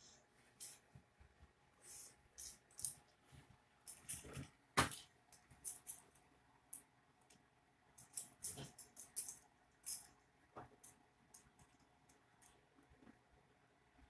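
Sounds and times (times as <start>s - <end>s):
plastic toys rustling and clicking: 2.4s - 3.2s, 3.8s - 7.4s, 8.0s - 12.6s.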